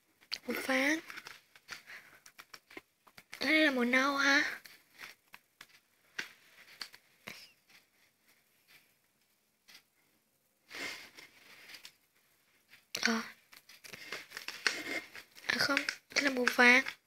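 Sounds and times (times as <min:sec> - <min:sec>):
plastic crayons clicking in case: 0:00.2 - 0:03.7, 0:04.6 - 0:07.0, 0:13.0 - 0:17.0.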